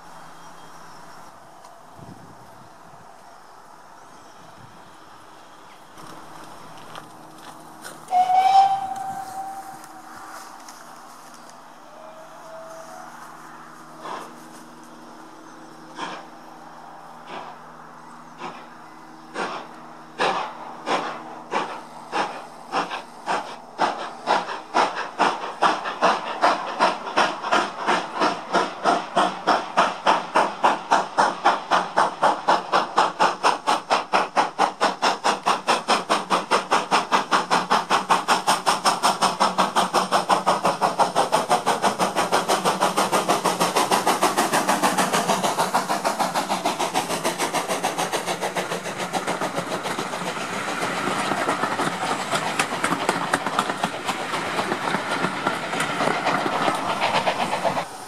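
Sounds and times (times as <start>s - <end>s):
steady hiss of steam: 0.0s - 58.0s
steam locomotive exhaust chuffs: 0.0s - 58.0s.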